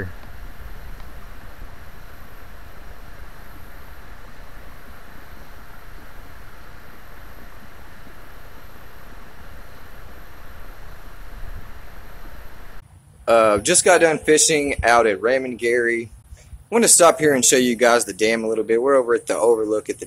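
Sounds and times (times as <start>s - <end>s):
low rumble: 0.0s - 12.8s
outdoor rushing noise: 0.0s - 18.0s.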